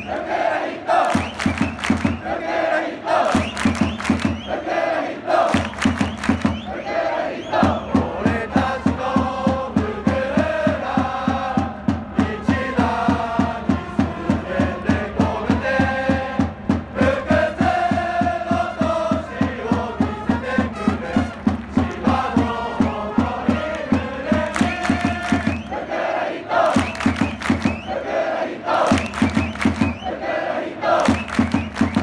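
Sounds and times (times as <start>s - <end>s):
crowd singing in unison: 0.0s - 32.0s
bass drum beat: 3.4s - 4.5s, 7.6s - 25.7s, 26.8s - 28.0s, 28.9s - 30.1s, 31.1s - 32.0s.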